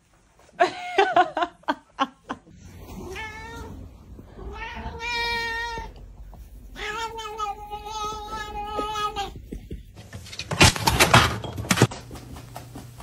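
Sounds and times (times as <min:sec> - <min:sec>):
cat meowing: 0:03.0 - 0:06.0, 0:06.8 - 0:09.4.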